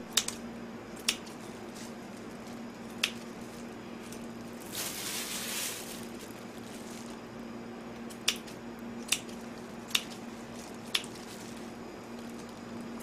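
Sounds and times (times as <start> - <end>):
steady low hum: 0.0 - 13.0
soft rustling hiss: 1.4 - 7.3.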